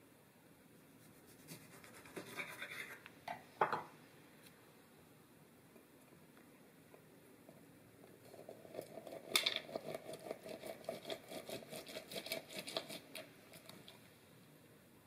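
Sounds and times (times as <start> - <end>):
lemon grinding on juicer: 8.3 - 13.8.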